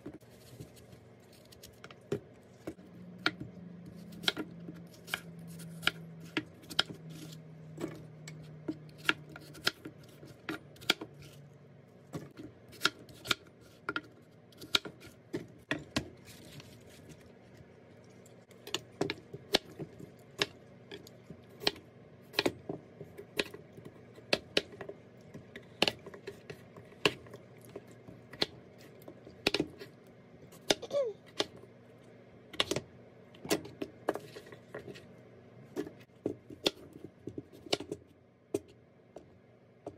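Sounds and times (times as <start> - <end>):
knife chopping on plastic board: 8.6 - 11.1, 12.2 - 16.2, 18.7 - 24.9.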